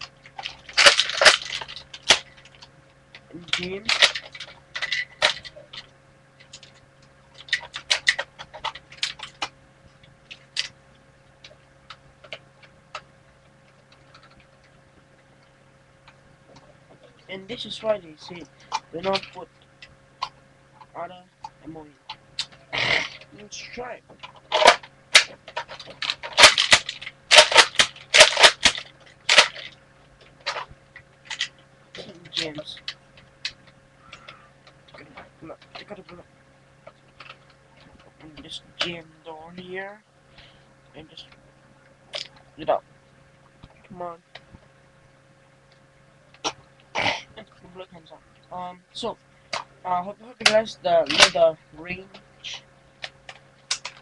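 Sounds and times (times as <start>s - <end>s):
plastic toy blaster clicks and rattles: 0.3s - 2.7s, 3.5s - 6.8s, 18.7s - 19.4s, 24.3s - 29.8s, 31.3s - 33.6s, 53.3s - 54.0s
plastic toy blaster clacks: 0.4s - 2.2s, 24.5s - 29.7s.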